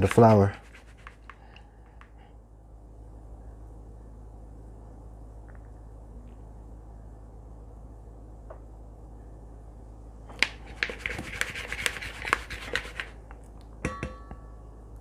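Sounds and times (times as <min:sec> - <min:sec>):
sharp taps against bowl: 0:13.8 - 0:14.4.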